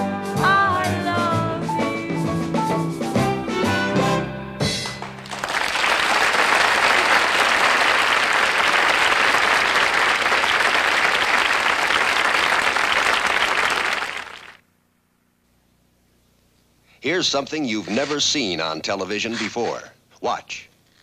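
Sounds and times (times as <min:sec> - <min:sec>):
audience applauding: 0:04.8 - 0:14.6.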